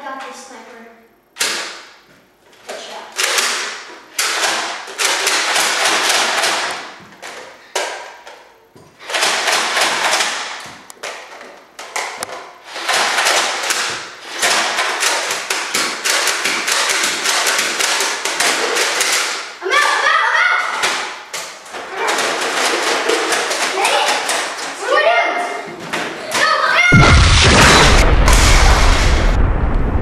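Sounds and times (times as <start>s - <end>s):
rapid-fire shots and thuds: 26.9s - 30.0s.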